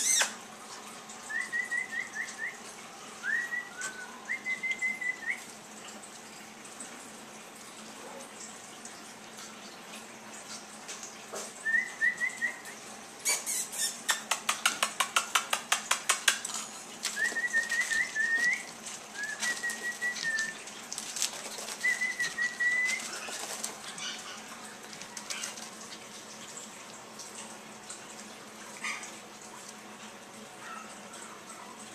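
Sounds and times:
puppies whining: 0:00.0 - 0:00.4, 0:16.5 - 0:20.7, 0:21.4 - 0:26.1.

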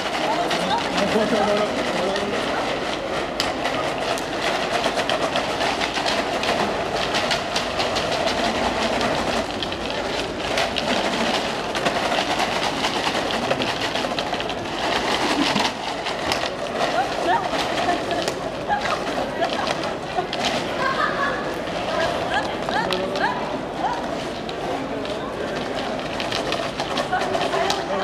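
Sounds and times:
pieces rattling in plastic bottles: 0:00.0 - 0:23.3, 0:24.0 - 0:28.0.

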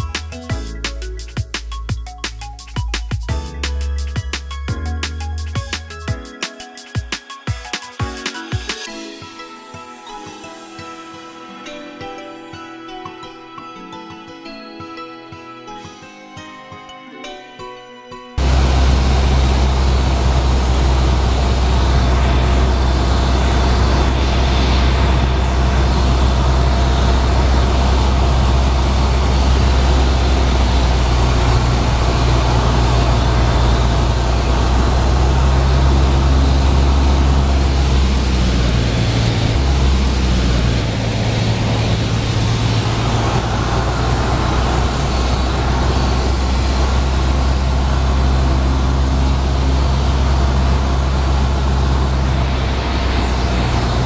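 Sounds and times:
aircraft engine and propeller drone: 0:18.4 - 0:54.0
rush of air: 0:18.4 - 0:54.0.

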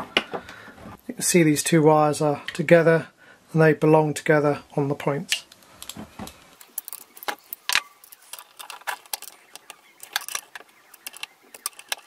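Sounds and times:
nut driver clicking on screws: 0:06.6 - 0:12.0.

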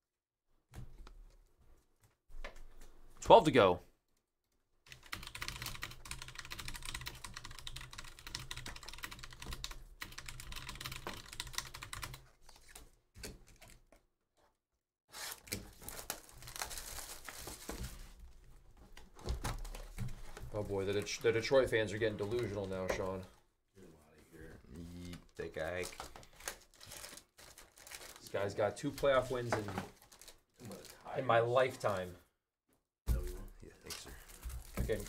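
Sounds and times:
keyboard typing: 0:04.9 - 0:12.2.

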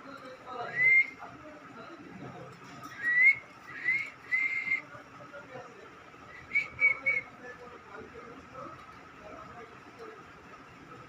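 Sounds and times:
person whistling: 0:03.0 - 0:04.8.

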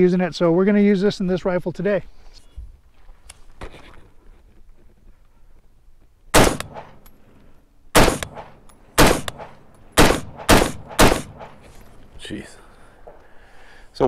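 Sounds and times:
rifle shots: 0:06.3 - 0:07.0, 0:08.0 - 0:11.7.

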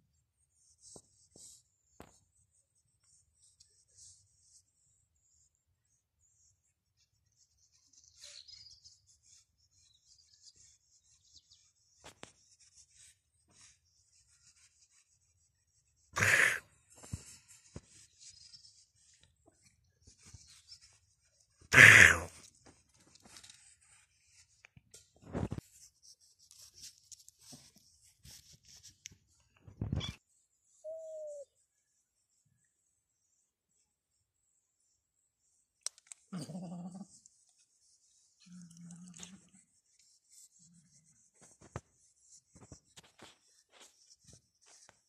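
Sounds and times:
soft high ticks and chirps: 0:00.1 - 0:15.9, 0:26.3 - 0:28.0, 0:35.4 - 0:36.3.

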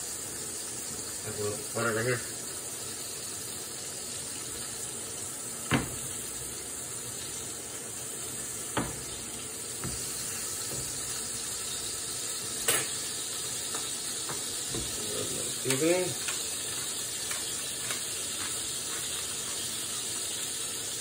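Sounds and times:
burger patty sizzling in a pan: 0:00.0 - 0:21.0
metal utensil clinking on a pan: 0:12.6 - 0:13.0, 0:13.7 - 0:19.7.

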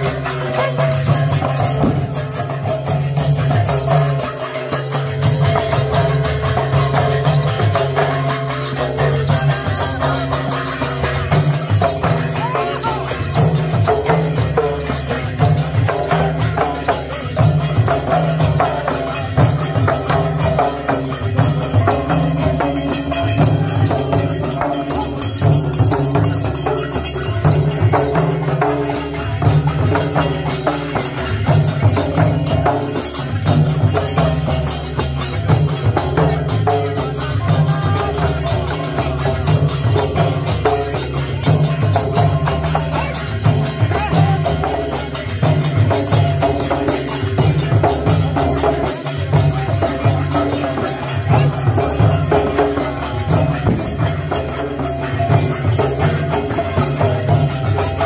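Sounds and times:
barrel drums beating rhythm: 0:00.0 - 0:58.0
jingling metallic shimmer: 0:00.0 - 0:58.0.

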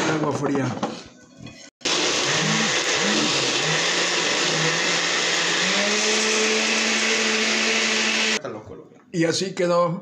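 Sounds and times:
blender running: 0:01.8 - 0:08.4.

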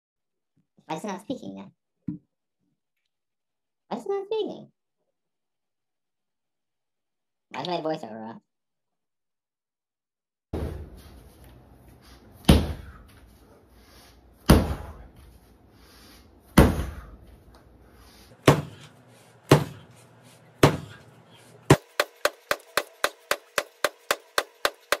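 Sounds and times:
heavy ball slammed onto gym floor: 0:12.4 - 0:13.0, 0:14.4 - 0:15.0, 0:16.5 - 0:17.1.

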